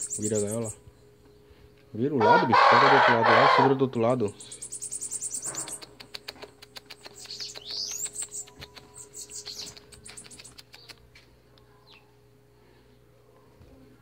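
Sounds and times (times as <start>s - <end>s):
birds chirping: 0.0s - 13.1s
quick clicks: 5.6s - 11.0s.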